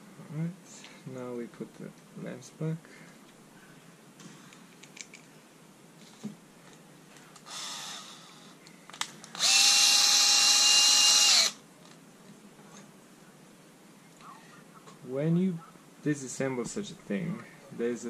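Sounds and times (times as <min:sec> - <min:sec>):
cordless drill whining: 0:07.5 - 0:08.3, 0:09.4 - 0:11.6.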